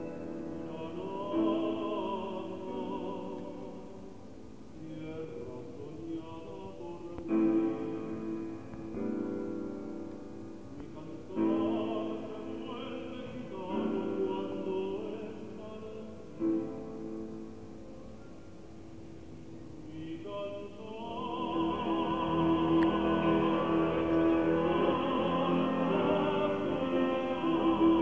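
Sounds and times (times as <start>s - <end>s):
man singing classical style: 0.0s - 17.9s, 19.7s - 28.0s
grand piano chords: 0.0s - 28.0s.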